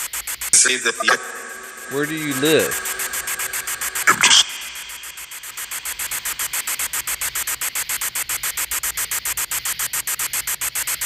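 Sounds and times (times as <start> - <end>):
pulsing radio static hiss: 0.6 - 7.8.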